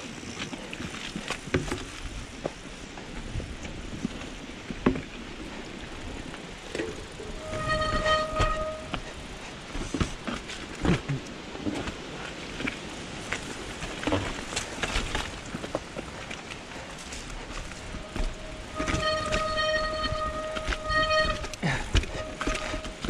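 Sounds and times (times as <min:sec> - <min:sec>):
bike tyre noise on trail: 0:00.0 - 0:23.0
bike knocks and rattles: 0:00.2 - 0:02.6, 0:04.0 - 0:05.2, 0:06.7 - 0:12.0, 0:17.0 - 0:23.0
steady squealing tone: 0:07.0 - 0:09.3, 0:17.7 - 0:23.0.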